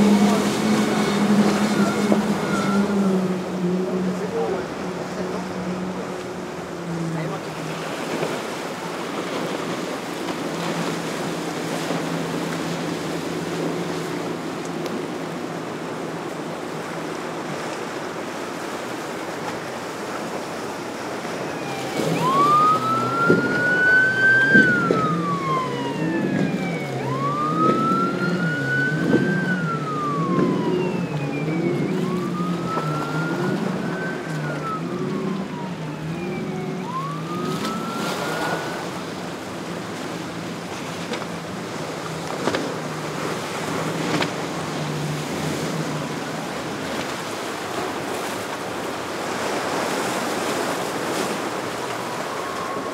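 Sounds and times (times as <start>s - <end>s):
emergency siren wailing: 0.0s - 5.8s, 20.2s - 48.4s, 49.4s - 52.9s
low warbling tone: 0.0s - 5.9s, 20.7s - 40.1s
surf: 0.0s - 52.9s
wind: 0.0s - 52.9s.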